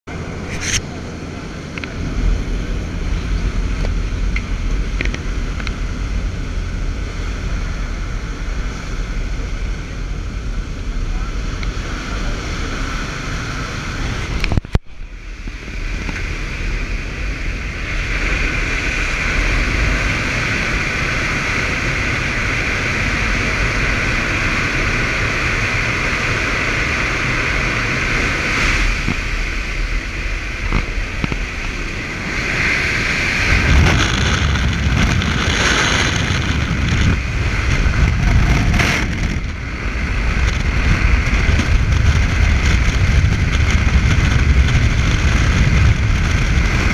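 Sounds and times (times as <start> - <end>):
plane engine and propeller drone: 0.1 - 46.9
wind rushing: 0.1 - 46.9.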